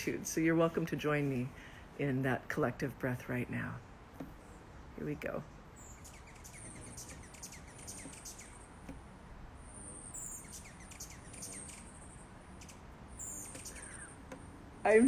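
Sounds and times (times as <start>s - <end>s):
soft background hiss: 0.0s - 15.0s
hummingbird chirps and squeaks: 5.7s - 8.9s, 9.5s - 15.0s.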